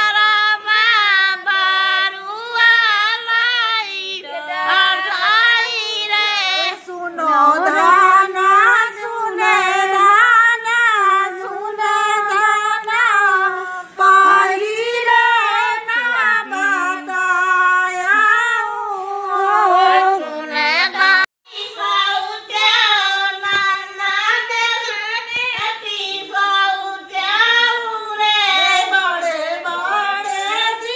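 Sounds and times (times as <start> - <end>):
women singing unaccompanied: 0.0 - 30.9.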